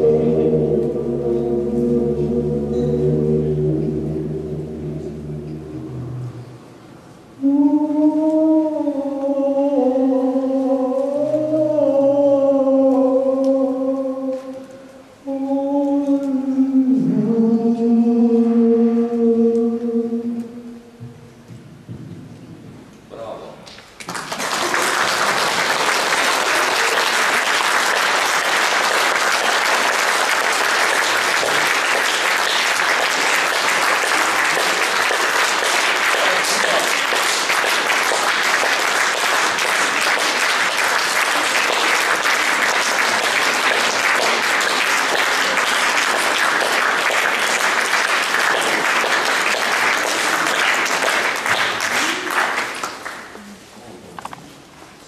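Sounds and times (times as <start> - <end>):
audience applauding: 24.0 - 53.4.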